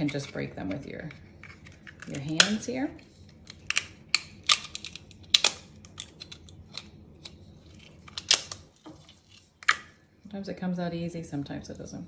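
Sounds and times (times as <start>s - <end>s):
lobster shell cracking: 3.3s - 9.9s.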